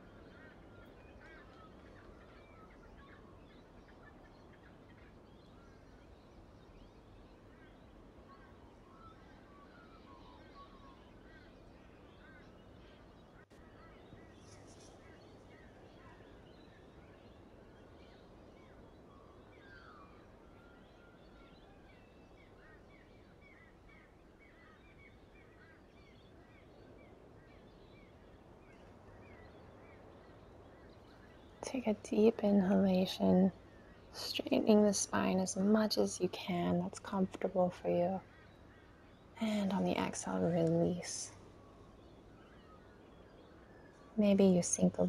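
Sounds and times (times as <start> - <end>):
faint bird chirps: 0.0 - 45.0.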